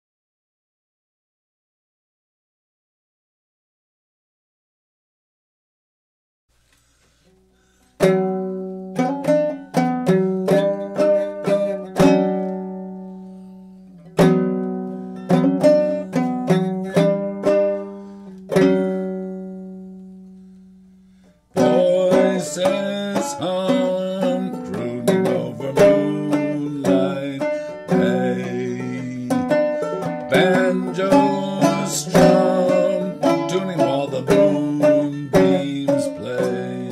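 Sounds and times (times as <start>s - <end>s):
banjo playing: 8.0s - 36.9s.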